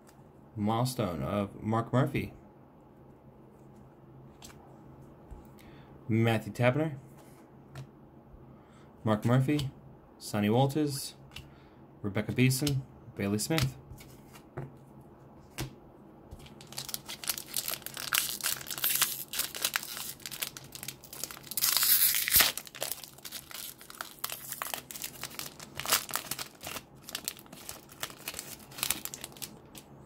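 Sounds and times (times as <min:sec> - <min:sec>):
foil wrapper crinkling and tearing: 0:16.4 - 0:29.9.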